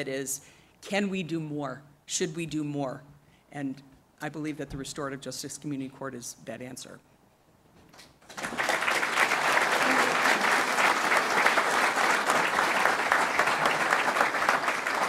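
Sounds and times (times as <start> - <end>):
audience applauding: 8.2 - 15.0.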